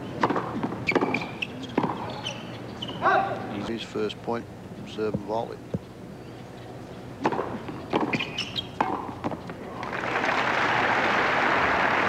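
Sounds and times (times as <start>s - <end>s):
tennis racket hits: 7.2s - 9.4s
crowd applause: 9.8s - 12.0s.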